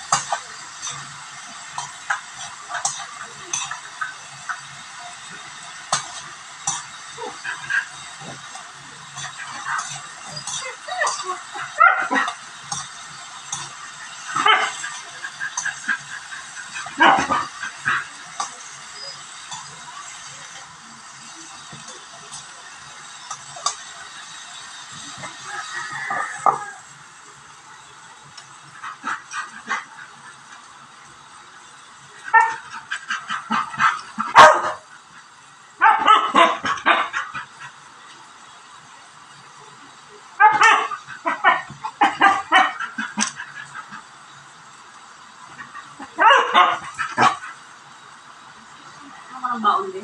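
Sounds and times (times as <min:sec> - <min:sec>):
spatula scraping in a wok: 0:00.0 - 0:35.6
dog barking: 0:09.2 - 0:12.4, 0:14.3 - 0:15.0, 0:15.6 - 0:18.5, 0:32.3 - 0:32.7, 0:33.5 - 0:34.8, 0:35.8 - 0:37.3, 0:40.4 - 0:42.9, 0:46.1 - 0:47.6.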